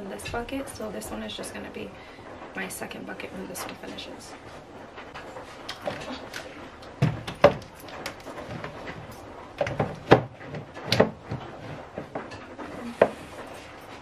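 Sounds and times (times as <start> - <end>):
plastic containers knocking: 5.7 - 13.2.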